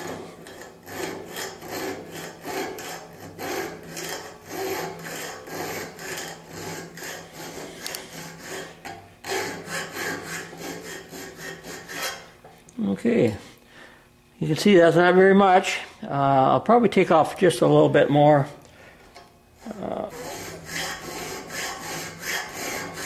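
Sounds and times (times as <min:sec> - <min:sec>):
file rasping on metal: 0:00.0 - 0:12.4, 0:19.6 - 0:23.0.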